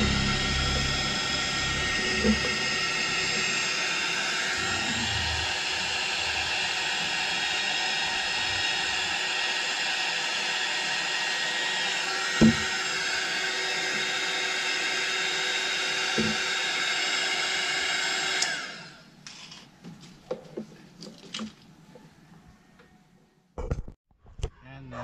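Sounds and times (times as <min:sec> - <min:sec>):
fan winding down: 0:00.0 - 0:19.0
heat gun blowing with motor whine: 0:00.0 - 0:19.0
dull knocks: 0:12.4 - 0:12.7.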